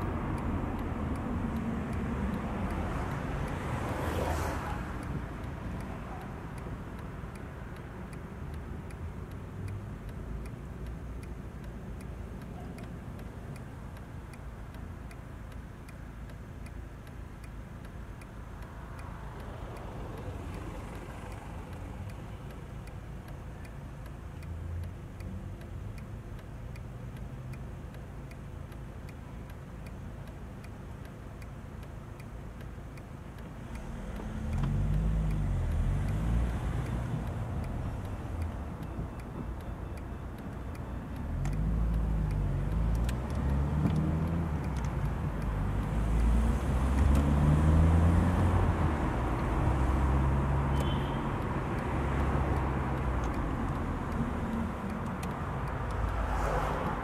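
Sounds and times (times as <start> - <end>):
light regular ticking: 0.0 - 57.0
car engine idling: 5.0 - 27.0.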